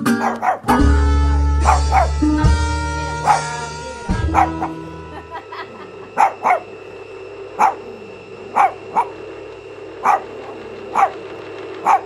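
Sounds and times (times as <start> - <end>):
small dog barking: 0.1 - 0.9, 1.6 - 2.2, 3.1 - 4.8, 6.2 - 6.7, 7.6 - 9.2, 10.0 - 11.2, 11.8 - 12.0.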